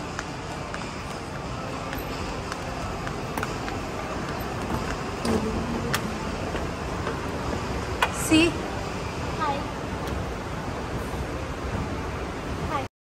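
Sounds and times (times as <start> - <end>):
faint footsteps: 0.0 - 7.9
shopping mall background noise: 0.0 - 12.9.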